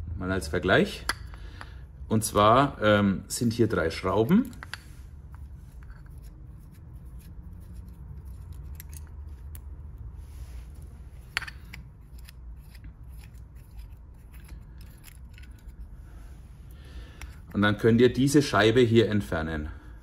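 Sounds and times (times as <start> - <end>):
low steady hum: 0.0 - 20.0
small screws clicking and scraping: 4.2 - 16.3, 17.0 - 17.5.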